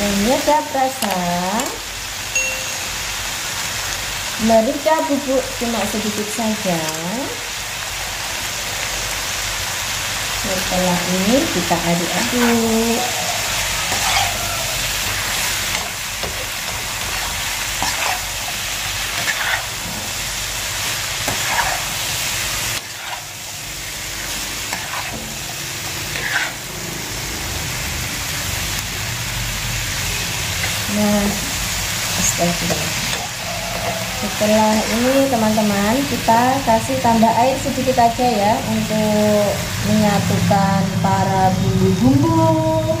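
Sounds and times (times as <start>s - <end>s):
food sizzling in wok: 0.0s - 43.0s
spatula scraping and tossing: 10.9s - 26.7s, 32.2s - 36.2s.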